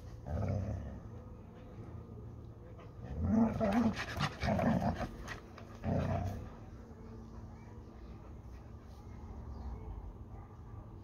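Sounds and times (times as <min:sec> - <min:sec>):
dogs play-growling: 0:00.0 - 0:01.1, 0:03.0 - 0:06.6.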